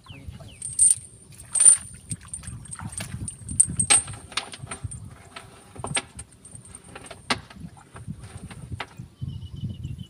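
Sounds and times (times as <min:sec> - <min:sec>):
sharp clicks and knocks: 0:01.6 - 0:08.9.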